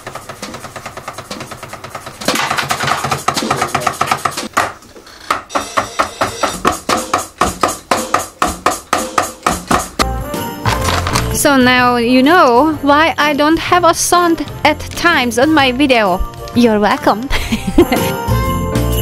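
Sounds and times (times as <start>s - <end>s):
drum kit steady beat: 5.5s - 11.4s.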